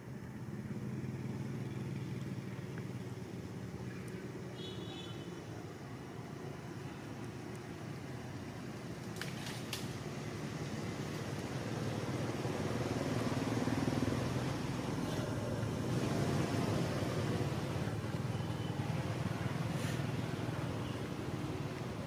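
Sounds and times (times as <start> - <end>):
vehicle engine rumbling: 0.0 - 22.0
faint clicks: 4.0 - 4.2.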